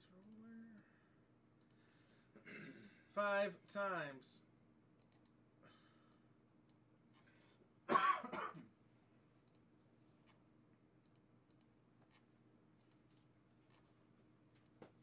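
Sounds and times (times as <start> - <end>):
computer mouse clicks: 1.6 - 1.9, 5.0 - 5.4, 9.4 - 10.4, 11.0 - 12.2, 12.8 - 13.8, 14.5 - 14.9
person coughing: 2.4 - 3.0, 7.9 - 8.7.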